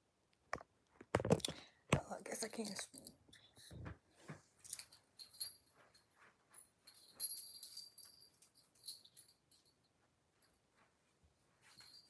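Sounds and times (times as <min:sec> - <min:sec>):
metal chains jingling: 0:04.6 - 0:09.9.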